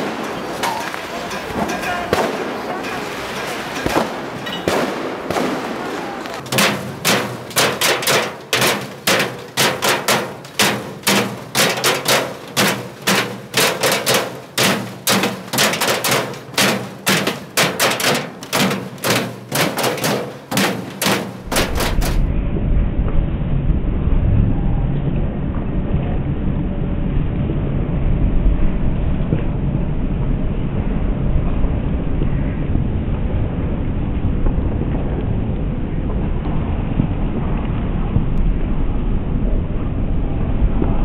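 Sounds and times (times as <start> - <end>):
rapid sharp bangs: 0.0 - 22.3
low rumble: 21.4 - 41.0.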